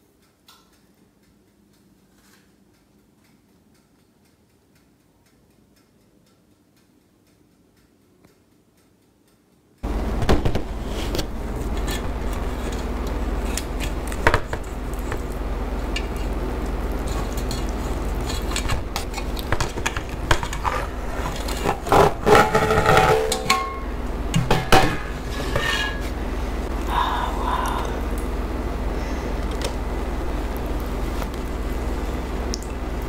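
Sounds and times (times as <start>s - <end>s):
steady low hum: 9.6s - 33.0s
metal baking pan knocking: 21.7s - 26.0s.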